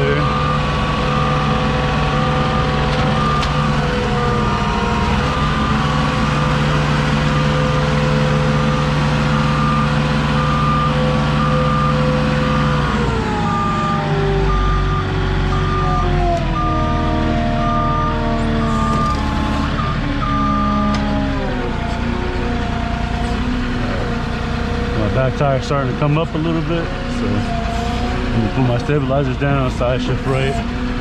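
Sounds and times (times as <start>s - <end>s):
backup alarm beeping: 0.0s - 21.0s
forklift engine running: 0.0s - 31.0s.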